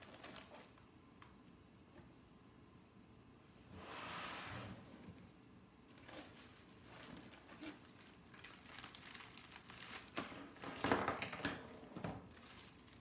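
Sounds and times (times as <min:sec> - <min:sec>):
plastic bags crinkling: 0:00.0 - 0:00.8, 0:05.9 - 0:13.0.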